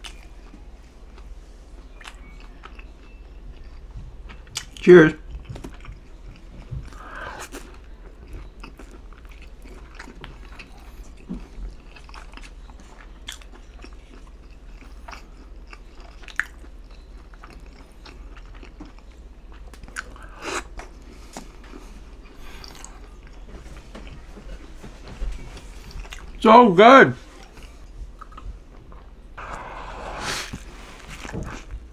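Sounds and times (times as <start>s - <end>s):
crunchy chewing: 0.0s - 24.2s
wet mouth sounds: 6.7s - 7.8s.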